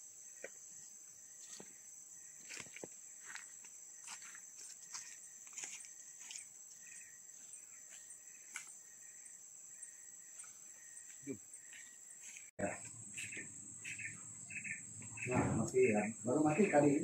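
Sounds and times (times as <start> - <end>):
insects chirring drone: 0.0 - 17.0
footsteps on dry leaves: 2.4 - 6.6.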